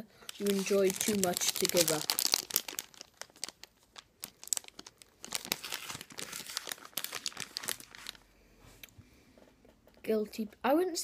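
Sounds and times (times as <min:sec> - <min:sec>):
plastic wrapper crinkling: 0:00.2 - 0:08.4.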